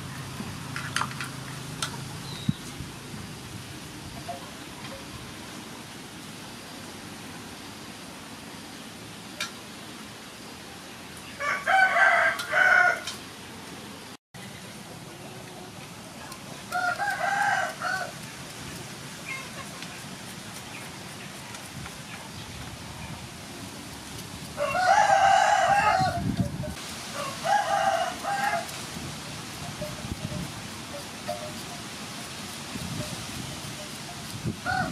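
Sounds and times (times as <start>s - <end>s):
steady background hiss: 0.0s - 34.9s
rooster crowing: 11.4s - 13.2s, 16.7s - 18.2s, 24.6s - 26.2s, 27.1s - 28.7s, 34.6s - 34.9s.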